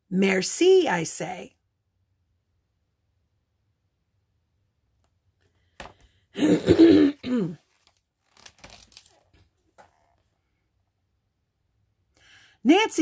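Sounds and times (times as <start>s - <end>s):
woman coughing: 6.4s - 7.6s
book page turning: 7.6s - 10.3s.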